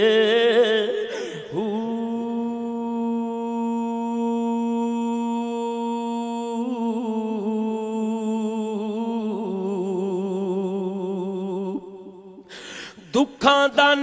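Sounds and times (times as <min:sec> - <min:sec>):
man singing wordless note: 0:13.0 - 0:14.0.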